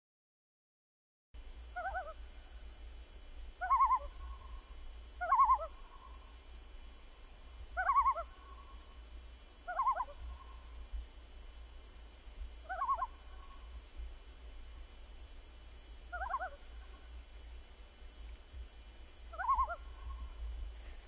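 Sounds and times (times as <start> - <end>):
steady low hum: 1.4 - 21.0
bird call with wavering pitch: 1.8 - 2.2, 3.6 - 4.4, 5.2 - 6.2, 7.8 - 8.6, 9.7 - 10.6, 12.7 - 13.1, 16.2 - 16.6, 19.3 - 20.2.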